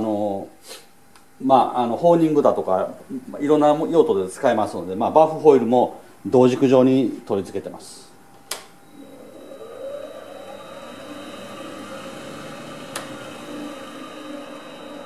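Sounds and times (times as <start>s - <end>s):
electric motor whine: 8.8s - 15.0s.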